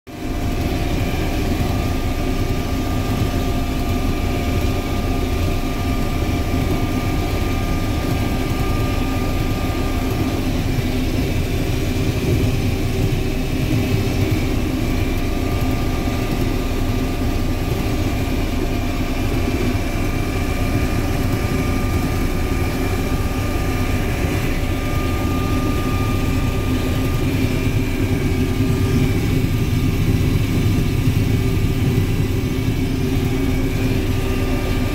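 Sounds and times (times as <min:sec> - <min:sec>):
combine engine drone: 0:00.1 - 0:34.9.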